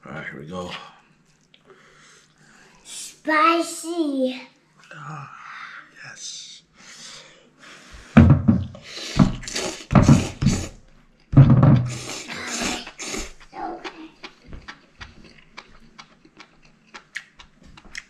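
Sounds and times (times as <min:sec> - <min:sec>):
person slurping noodles: 0:08.8 - 0:10.8, 0:11.9 - 0:13.6
wet chewing smacks: 0:12.0 - 0:18.0.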